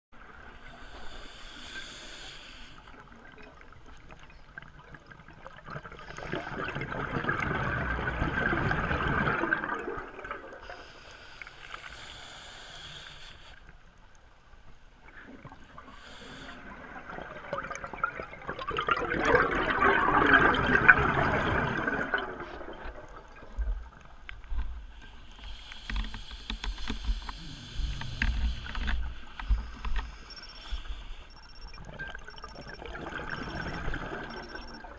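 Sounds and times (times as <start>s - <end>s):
exhaled bubbles rushing: 5.4s - 10.7s, 16.6s - 24.0s, 31.7s - 34.9s.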